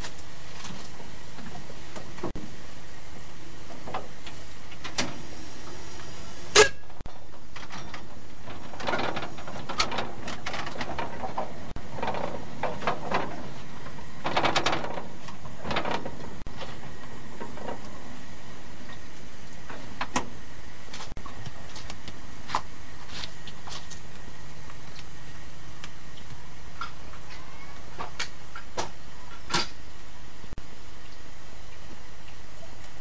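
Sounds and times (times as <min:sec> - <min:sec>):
locomotive chuffs and clanks: 0:05.1 - 0:19.0.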